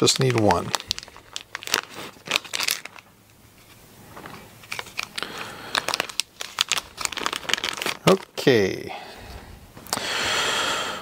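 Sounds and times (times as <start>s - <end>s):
plastic bags crinkling: 0.0s - 8.9s.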